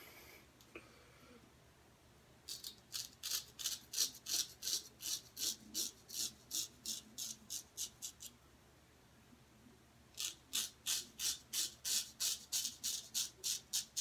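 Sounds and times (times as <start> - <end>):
razor scraping beard stubble: 2.5 - 8.3, 10.2 - 14.0.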